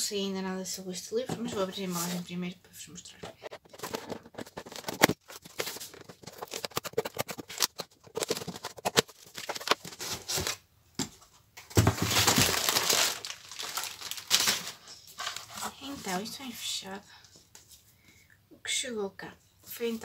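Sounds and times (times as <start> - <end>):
cardboard rustling: 3.2 - 16.3
packaging tearing and crumpling: 3.8 - 10.6, 11.9 - 15.6.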